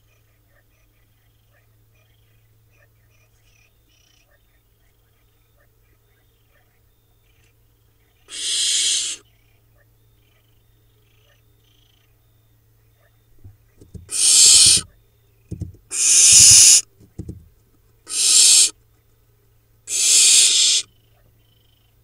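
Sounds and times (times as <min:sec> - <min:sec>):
owlets hissing begging calls: 0:08.3 - 0:09.2, 0:14.0 - 0:14.9, 0:15.9 - 0:16.8, 0:18.1 - 0:18.7, 0:19.9 - 0:20.9
soft low bumps: 0:15.5 - 0:15.9, 0:17.0 - 0:17.5.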